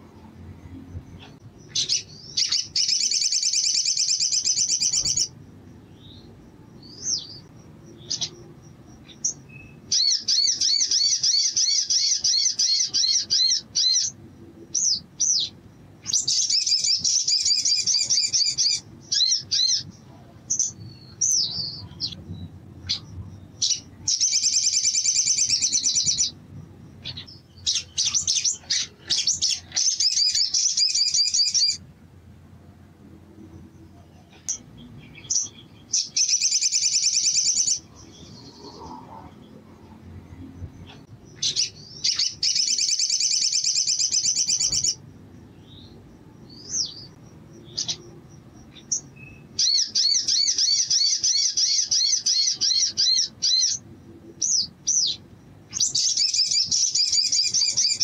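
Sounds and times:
bird chirps: 0.1 - 31.8, 33.5 - 58.0
bird trilling: 1.2 - 5.3, 6.0 - 19.9, 22.8 - 26.4, 27.0 - 31.8, 34.4 - 39.4, 40.9 - 45.0, 46.5 - 48.1, 48.7 - 53.8, 54.4 - 58.0.

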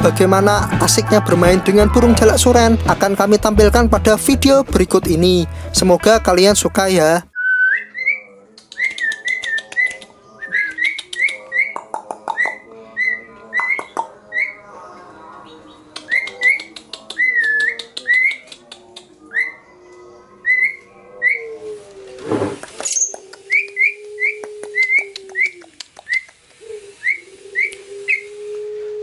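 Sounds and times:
starling whistled notes: 7.4 - 11.8, 22.8 - 29.0
bird clicking chatter: 8.6 - 12.7, 15.9 - 19.2, 22.6 - 28.2.

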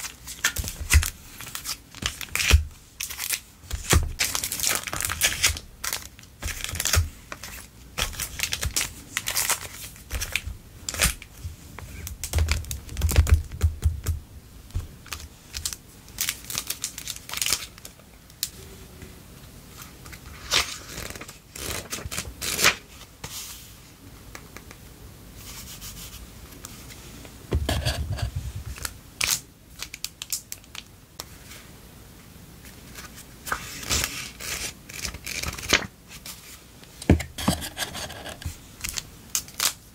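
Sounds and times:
plastic sleeves crinkling: 0.0 - 13.5, 14.7 - 18.5.

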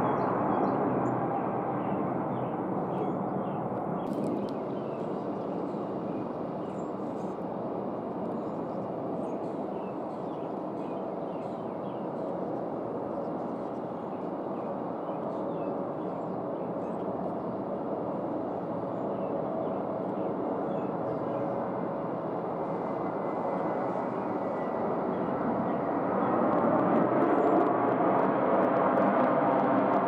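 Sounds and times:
jet engines rushing: 0.0 - 30.0
small birds chirping: 1.8 - 7.4, 8.2 - 17.2, 18.9 - 22.2.

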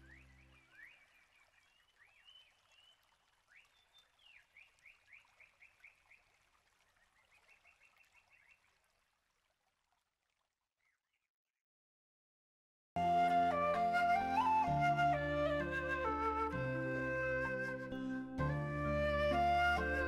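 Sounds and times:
small birds chirping: 0.0 - 6.3.

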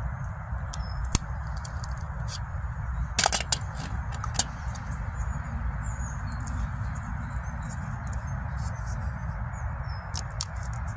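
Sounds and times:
low background rumble: 0.0 - 10.9
knife cracking chestnut shell: 10.1 - 10.9.

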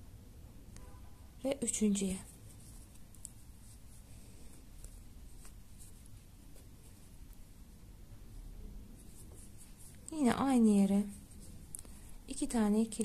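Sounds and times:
low room hum: 0.0 - 13.0
crochet hook working yarn: 2.2 - 7.4, 9.0 - 12.1.

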